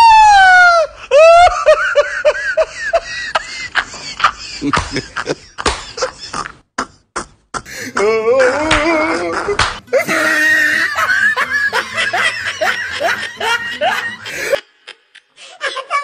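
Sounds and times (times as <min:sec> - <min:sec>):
loud vocal cry: 0:07.8 - 0:11.4.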